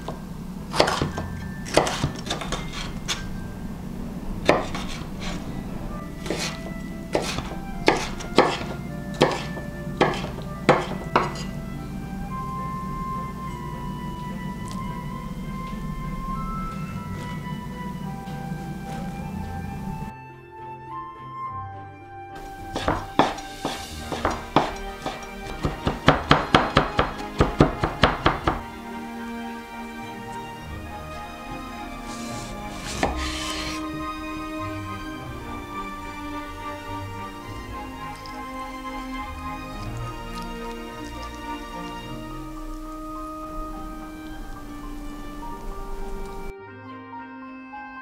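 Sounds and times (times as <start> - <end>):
knife chopping on wooden board: 0.7 - 3.2, 4.5 - 5.4, 6.2 - 11.5, 22.7 - 28.6, 32.8 - 33.8.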